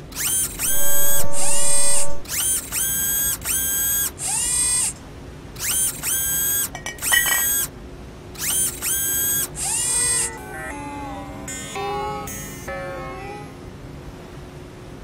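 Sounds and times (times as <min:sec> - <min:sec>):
electric motor whine: 0:00.2 - 0:03.8.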